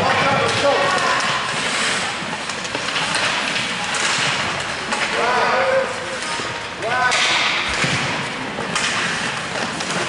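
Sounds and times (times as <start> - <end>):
skates scraping on ice: 0.0 - 6.2, 8.2 - 10.0.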